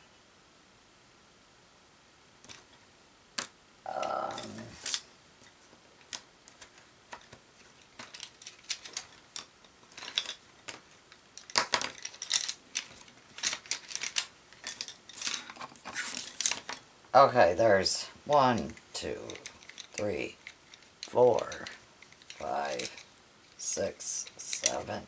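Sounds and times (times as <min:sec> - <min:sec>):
pencils clattering on a tabletop: 0:06.0 - 0:16.8, 0:18.3 - 0:25.0.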